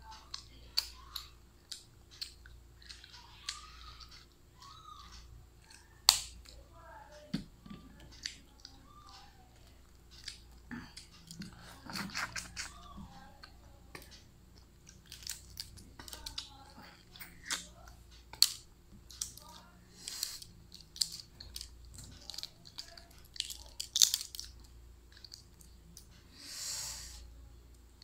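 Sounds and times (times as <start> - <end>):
eggshell cracking: 18.3 - 26.1.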